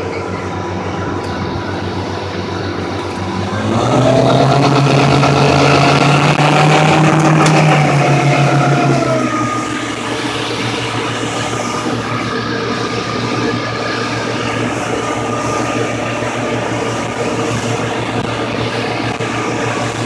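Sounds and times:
outboard motors running: 0.0 - 20.0
wake water rushing: 1.9 - 20.0.

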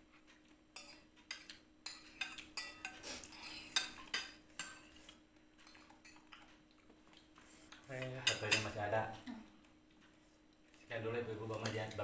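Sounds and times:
spoons clinking against bowls: 0.8 - 6.4, 8.0 - 8.8.

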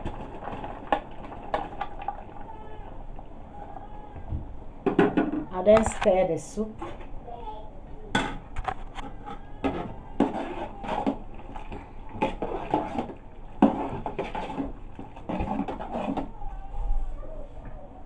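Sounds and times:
spoon scraping a metal pot: 9.6 - 11.2, 12.2 - 16.3.

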